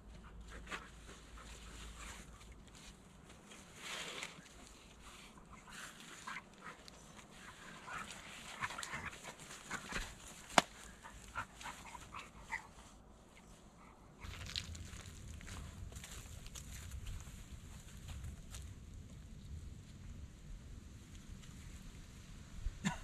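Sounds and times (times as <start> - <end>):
feet rustling on dry leaves: 14.2 - 18.7.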